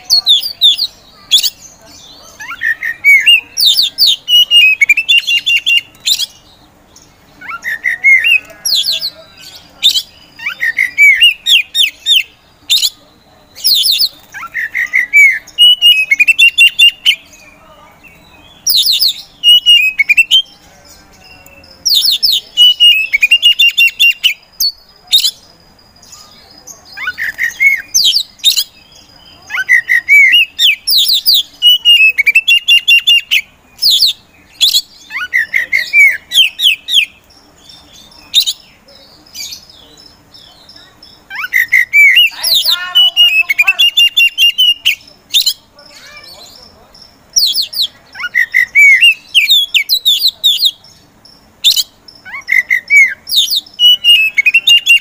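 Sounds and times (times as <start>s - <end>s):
magpie-robin singing: 0.0s - 55.0s.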